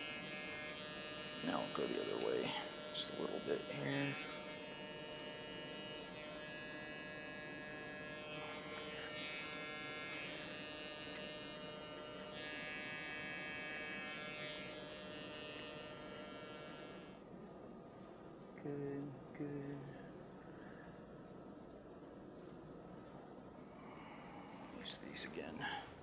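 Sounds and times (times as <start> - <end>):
hair clippers buzzing: 0.0 - 17.2.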